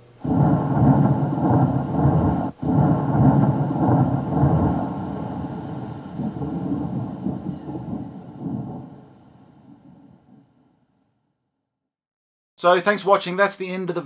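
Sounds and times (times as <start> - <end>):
thunder rolling rumble: 0.2 - 10.6.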